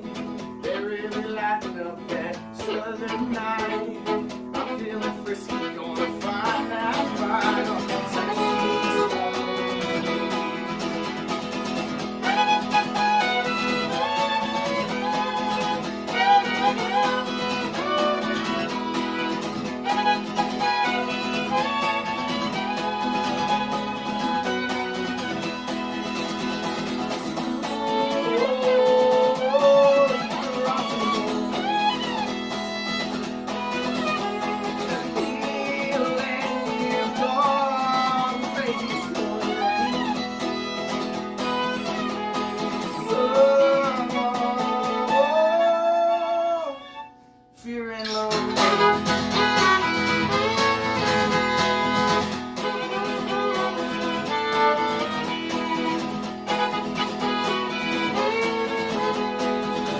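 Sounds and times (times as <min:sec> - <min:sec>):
fiddle playing melody: 0:00.0 - 0:47.2, 0:48.2 - 0:59.9
acoustic guitar strumming: 0:00.0 - 0:59.9.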